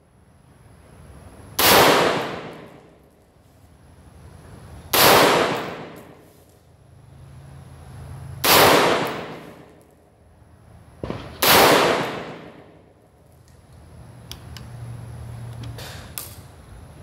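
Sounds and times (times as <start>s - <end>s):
rifle gunshots with echo: 1.6s - 2.8s, 4.9s - 6.2s, 8.4s - 9.7s, 11.0s - 12.8s.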